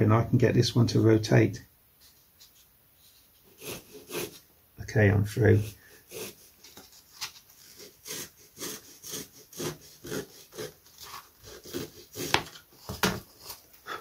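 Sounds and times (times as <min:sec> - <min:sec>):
saw cutting wood: 0:03.5 - 0:04.4, 0:05.6 - 0:06.5, 0:07.6 - 0:12.6.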